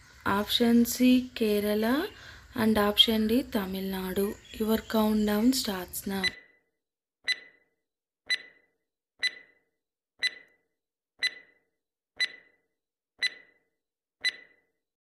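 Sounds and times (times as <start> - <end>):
clock ticking: 7.3 - 7.5, 8.3 - 8.6, 9.2 - 9.6, 10.2 - 10.6, 11.2 - 11.6, 12.2 - 12.6, 13.2 - 13.6, 14.2 - 14.6.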